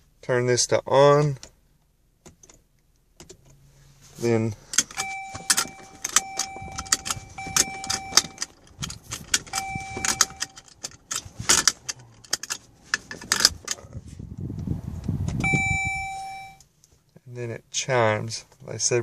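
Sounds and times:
seat belt buckle clicking: 0:04.7 - 0:13.9
seat belt warning chime: 0:04.8 - 0:11.6, 0:15.4 - 0:16.7.

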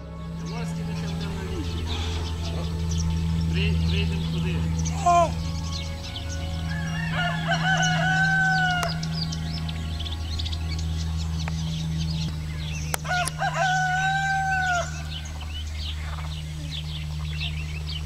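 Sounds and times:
low hum: 0:00.0 - 0:18.0
small birds chirping: 0:00.0 - 0:18.0
rooster crowing: 0:06.3 - 0:09.7, 0:13.0 - 0:15.6.

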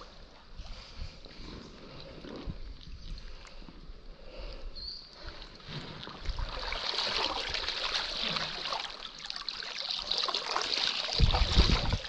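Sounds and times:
creek water splashing and trickling: 0:05.2 - 0:12.0.

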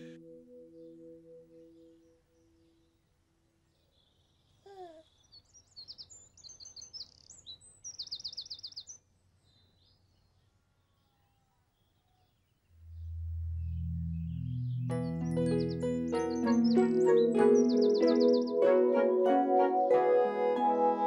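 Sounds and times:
low sustained music chord: 0:00.0 - 0:03.8, 0:12.8 - 0:21.0
bird trill: 0:05.1 - 0:10.0, 0:12.8 - 0:20.0
birds chirping and whistling: 0:05.2 - 0:09.0, 0:12.9 - 0:20.0.

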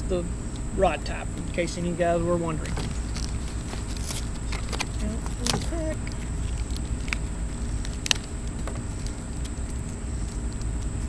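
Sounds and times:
plastic wrapping rustling: 0:02.6 - 0:11.0.

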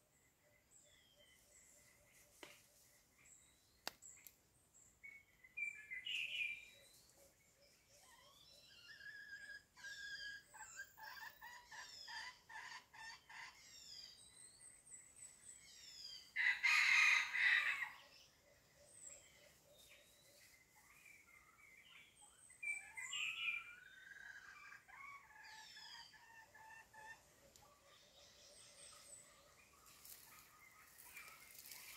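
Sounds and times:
small birds chirping: 0:00.0 - 0:16.5, 0:18.2 - 0:31.9
rooster crowing: 0:16.4 - 0:18.0.

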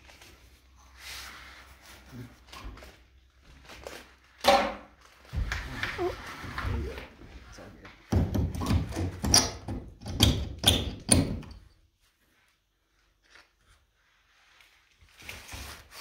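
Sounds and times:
hammer knocking on wood: 0:08.1 - 0:11.5.

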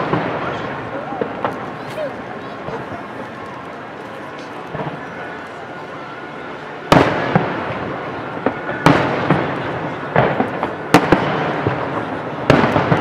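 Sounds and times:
firework booms with rumbling echo: 0:00.0 - 0:01.8, 0:06.9 - 0:13.0
firework cracks and pops: 0:00.0 - 0:05.8, 0:06.9 - 0:13.0.

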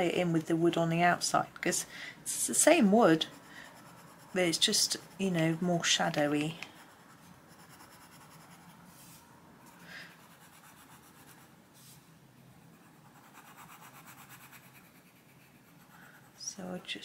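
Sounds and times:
pencil scratching on paper: 0:02.4 - 0:11.5, 0:12.4 - 0:16.4.

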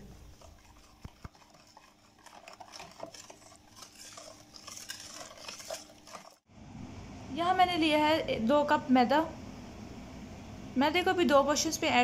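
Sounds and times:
whisk stirring batter in bowl: 0:00.0 - 0:06.5.

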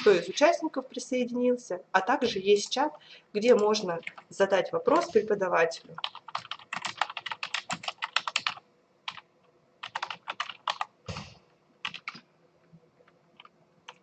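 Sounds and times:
typing on keyboard: 0:06.0 - 0:10.9, 0:11.8 - 0:12.3, 0:13.0 - 0:14.0.

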